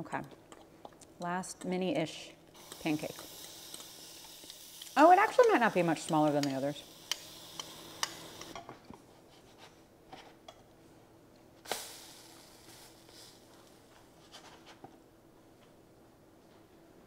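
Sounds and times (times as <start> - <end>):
faint sizzle: 2.6 - 8.6, 11.6 - 14.6.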